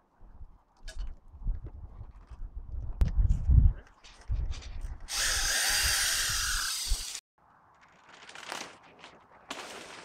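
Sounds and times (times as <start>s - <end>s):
power drill whining: 5.1s - 7.2s
plastic sheeting rustling: 7.9s - 10.0s.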